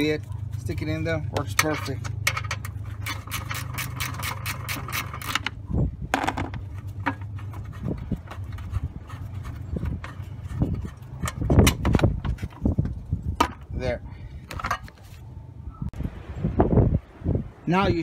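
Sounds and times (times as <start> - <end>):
handling knocks and bumps: 1.3 - 13.7
wind rumble on microphone: 4.6 - 18.0.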